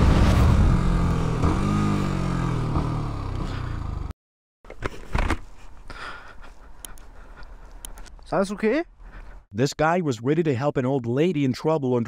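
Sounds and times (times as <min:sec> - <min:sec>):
motorcycle engine revving: 0:00.0 - 0:04.1.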